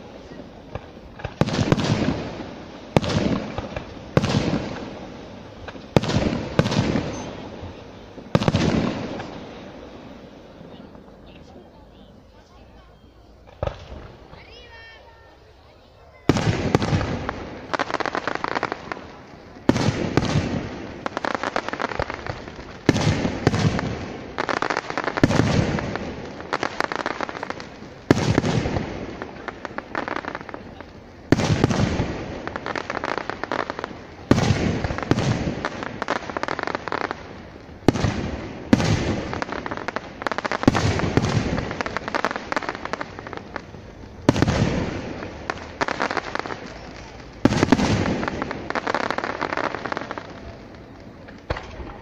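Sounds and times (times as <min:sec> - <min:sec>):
firework shells bursting: 0:16.3 - 0:52.0.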